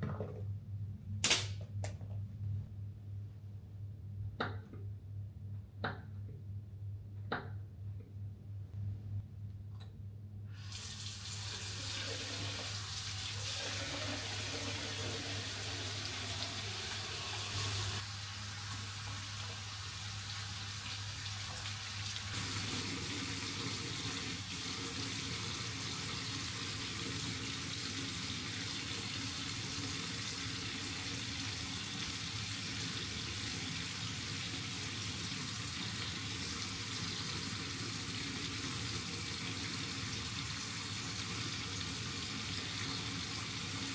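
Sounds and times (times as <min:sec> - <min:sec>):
water running from tap into sink: 0:10.6 - 0:43.9.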